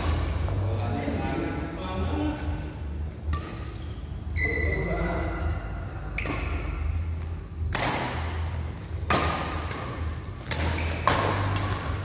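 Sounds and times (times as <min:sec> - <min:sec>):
badminton racket hitting shuttlecock: 0:03.3 - 0:03.8, 0:07.7 - 0:12.0.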